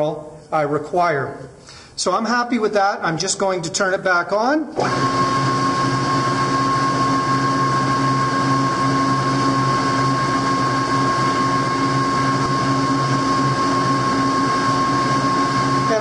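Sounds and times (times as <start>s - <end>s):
metal lathe whining: 4.8s - 16.0s.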